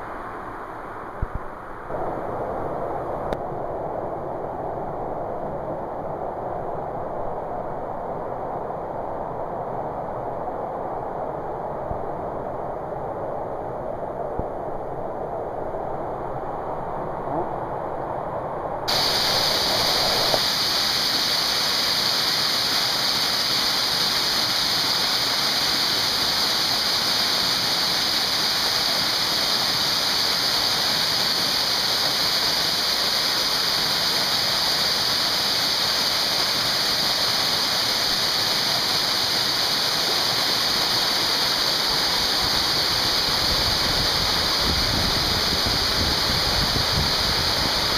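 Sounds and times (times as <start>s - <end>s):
waterfall rushing over rock: 18.9s - 47.9s.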